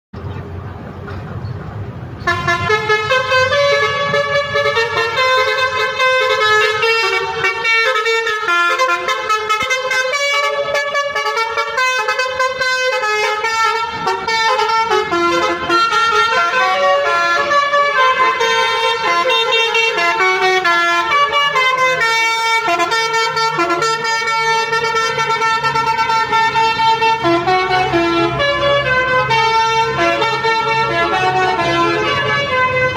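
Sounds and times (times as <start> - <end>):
musical air horns playing tune: 2.3 - 32.9.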